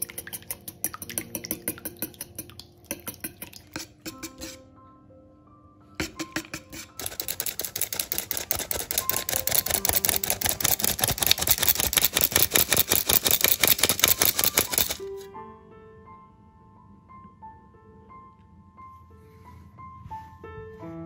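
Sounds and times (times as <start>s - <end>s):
flour sifter clicking: 6.0s - 15.2s.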